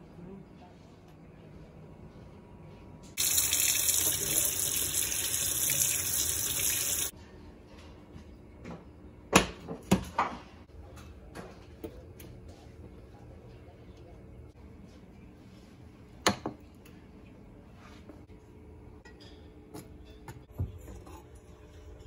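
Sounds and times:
faucet running: 3.2s - 7.1s.

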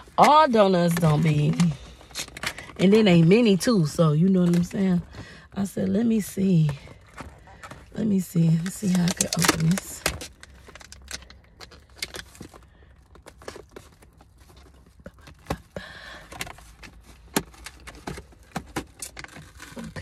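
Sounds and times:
plastic container crinkling: 7.1s - 15.5s.

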